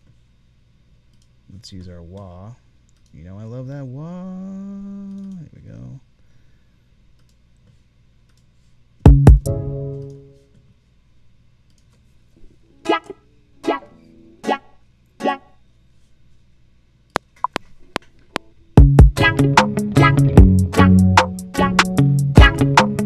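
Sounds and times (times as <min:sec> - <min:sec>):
light clicks: 0:02.9 - 0:03.2
rhythmic music: 0:09.1 - 0:10.2, 0:12.8 - 0:15.5, 0:18.8 - 0:23.0
electric guitar with wah effect: 0:12.7 - 0:15.6, 0:18.4 - 0:23.0.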